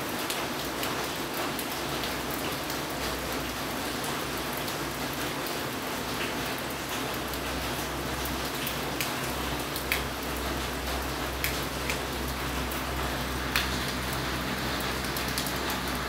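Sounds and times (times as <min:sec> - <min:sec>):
steady rain: 0:00.0 - 0:16.0
raindrops tapping: 0:06.2 - 0:16.0.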